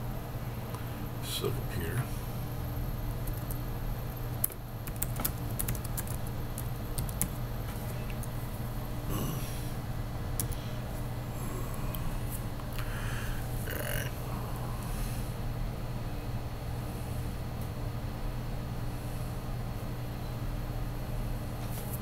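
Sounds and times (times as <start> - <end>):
keyboard typing clicks: 4.4 - 7.4.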